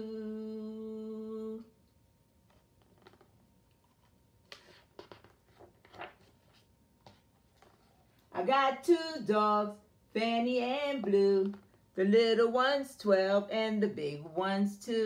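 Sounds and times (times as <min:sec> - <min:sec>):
book pages rustling and flipping: 0:02.4 - 0:08.3.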